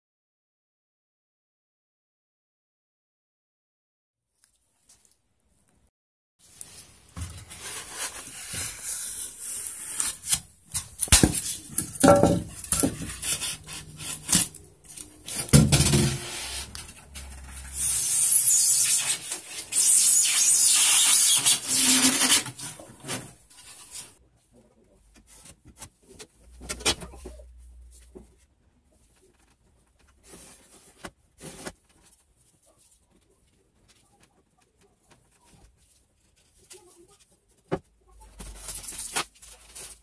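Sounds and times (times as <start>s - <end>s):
foam blocks rubbing and scraping: 6.5s - 24.2s.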